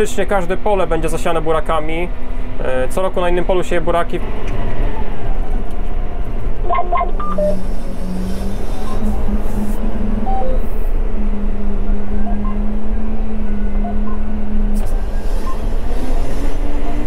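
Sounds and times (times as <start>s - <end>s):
tractor engine droning: 6.4s - 17.0s
short electronic beeps: 6.7s - 7.6s, 10.2s - 10.8s, 12.2s - 12.6s, 13.8s - 14.2s, 15.4s - 15.7s.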